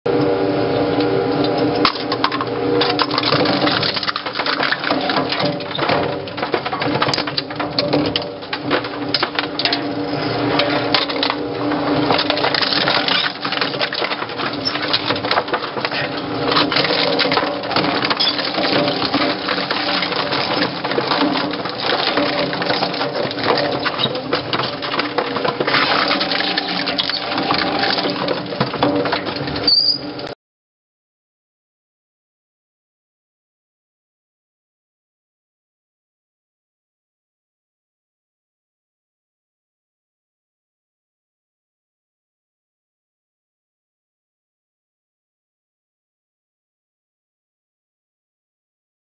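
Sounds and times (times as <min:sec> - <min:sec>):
motor and gear hum: 0:00.1 - 0:30.4
shredder cracking and clattering: 0:00.1 - 0:30.4.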